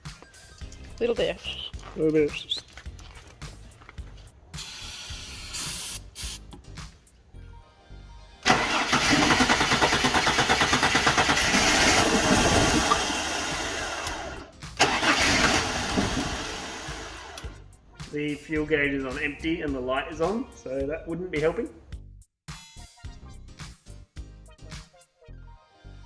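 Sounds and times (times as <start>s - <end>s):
car engine cranking: 8.4s - 17.6s.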